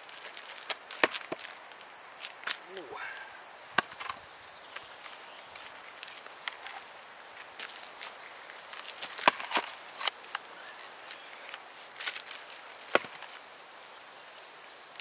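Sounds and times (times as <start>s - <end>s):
axe splitting log on block: 0.9s - 1.4s, 3.8s - 4.2s, 9.2s - 10.1s, 12.9s - 13.3s.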